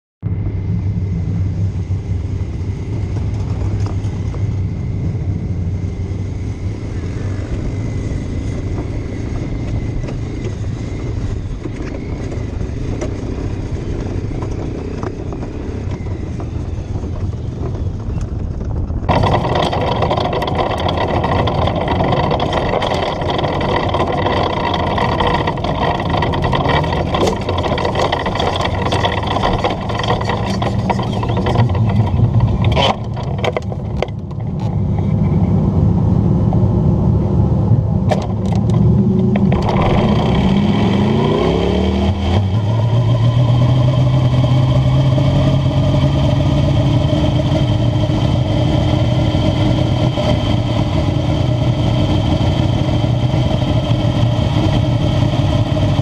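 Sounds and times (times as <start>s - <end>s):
race car engine revving: 19.1s - 35.6s, 36.4s - 56.0s.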